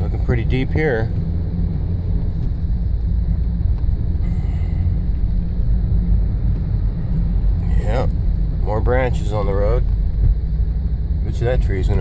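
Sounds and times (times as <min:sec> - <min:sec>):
vehicle cab rumble: 0:00.0 - 0:12.0.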